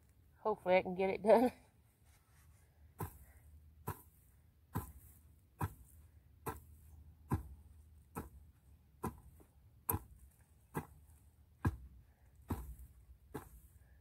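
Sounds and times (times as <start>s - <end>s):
hoe chopping into soil: 3.0s - 13.7s.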